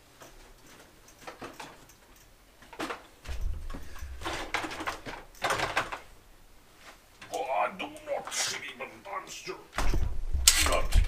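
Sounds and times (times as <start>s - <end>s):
bicycle clicks and knocks: 0.2s - 6.1s
bicycle wheels rumbling and clattering: 3.3s - 6.1s.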